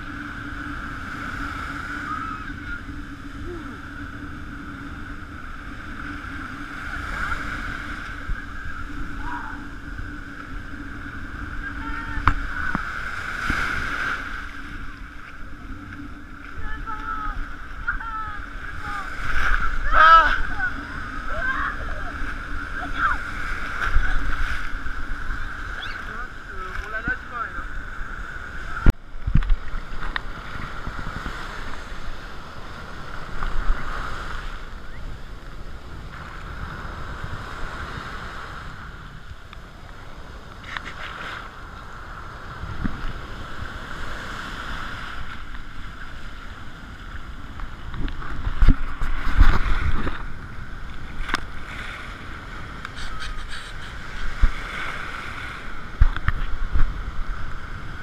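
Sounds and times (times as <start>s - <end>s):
waves washing and sloshing: 0.0s - 58.0s.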